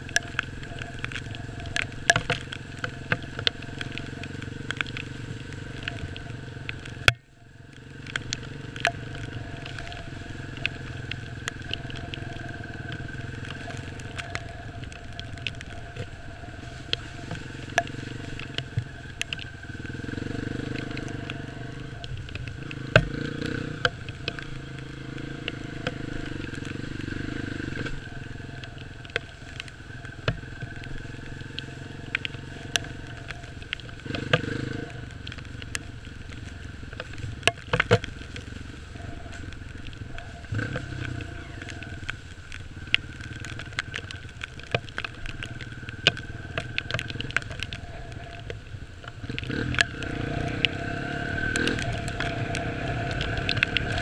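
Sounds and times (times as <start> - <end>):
motorcycle engine revving: 16.6 - 48.4, 49.1 - 54.0.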